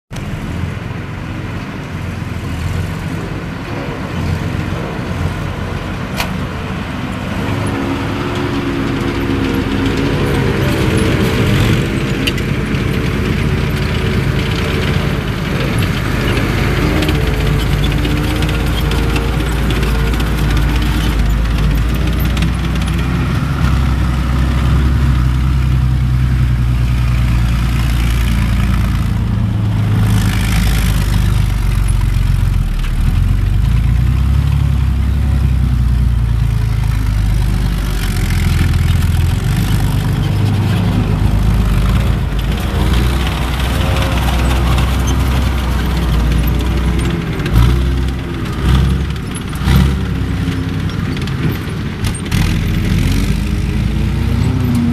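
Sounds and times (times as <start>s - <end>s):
diesel engine revving: 0.1s - 54.9s.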